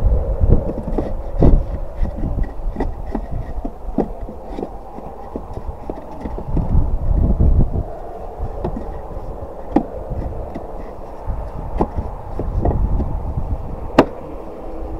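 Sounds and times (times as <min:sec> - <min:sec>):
low rumble: 0:00.0 - 0:14.9
wooden boards knocking: 0:00.6 - 0:06.8, 0:08.6 - 0:13.2, 0:13.9 - 0:14.2.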